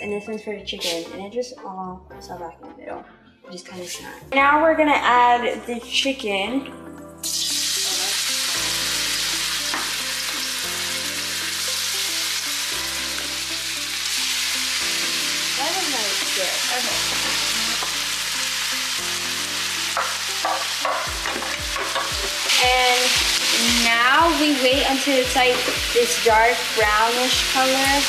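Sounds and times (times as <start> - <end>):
chicken sizzling in hot oil: 7.2 - 28.0.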